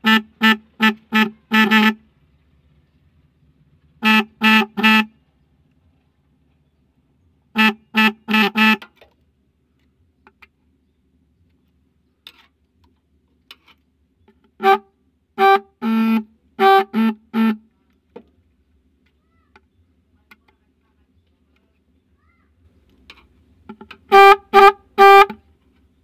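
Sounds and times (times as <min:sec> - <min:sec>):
electric car horn beeps: 0:00.0 - 0:02.0, 0:04.0 - 0:05.2, 0:07.5 - 0:09.0, 0:24.1 - 0:25.4.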